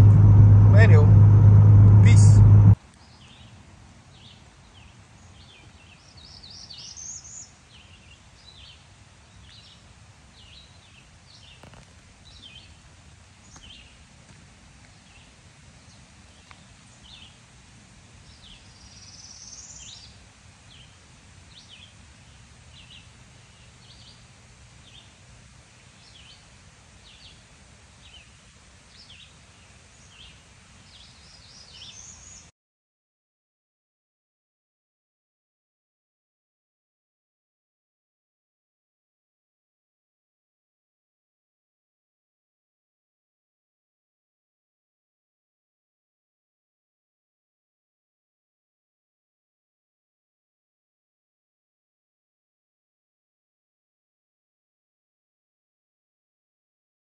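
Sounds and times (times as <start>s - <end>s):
low outdoor background: 0.0s - 32.5s.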